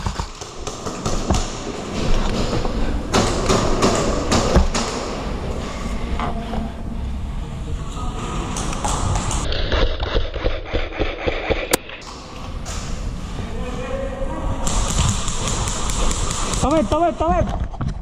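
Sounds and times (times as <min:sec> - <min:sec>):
footsteps: 0:08.2 - 0:13.8.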